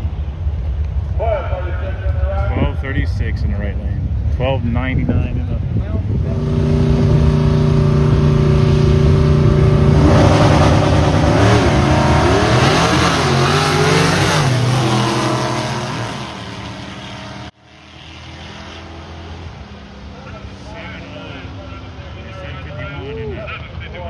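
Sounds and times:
drag race car engines revving: 0.1s - 24.0s.

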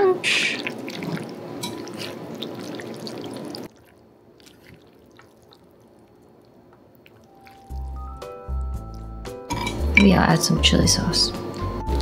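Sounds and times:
steady hiss with dripping ticks: 5.0s - 9.3s
music: 7.4s - 12.0s.

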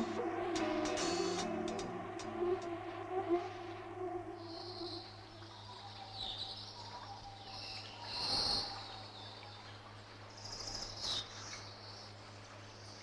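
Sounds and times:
steady low hum: 0.0s - 5.8s.

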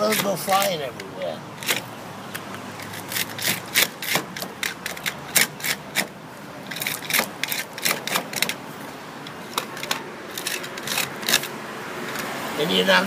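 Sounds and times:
fish scaler scraping scales: 9.6s - 11.5s.

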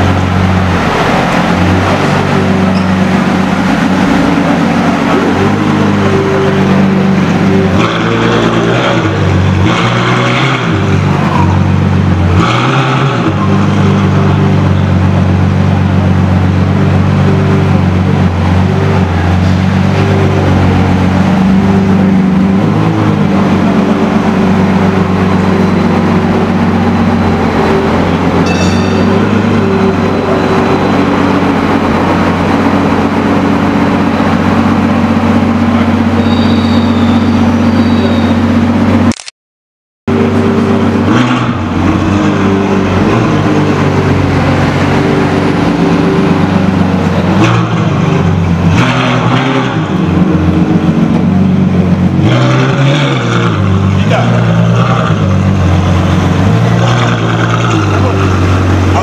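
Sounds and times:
car engine idling and revving: 0.0s - 39.3s, 40.1s - 59.0s.

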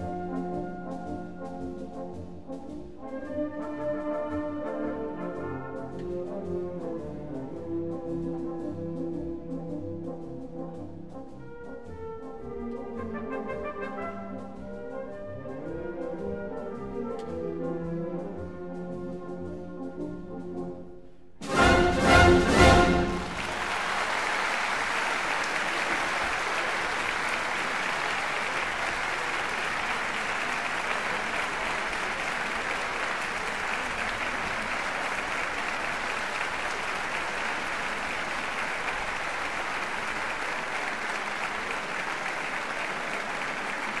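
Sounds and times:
applause: 21.6s - 44.0s.

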